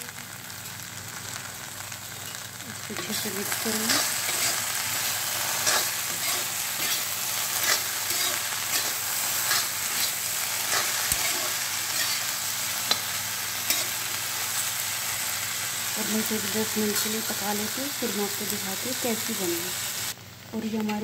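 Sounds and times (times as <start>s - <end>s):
vegetables sizzling in oil: 0.0s - 21.0s
spatula scraping and tapping pan: 5.6s - 12.3s.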